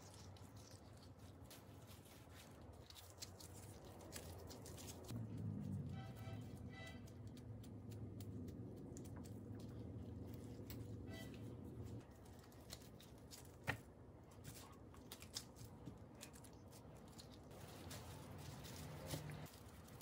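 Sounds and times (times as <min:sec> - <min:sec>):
plastic gloves rustling: 0:00.0 - 0:05.2, 0:08.8 - 0:20.0
low hum: 0:05.0 - 0:12.7.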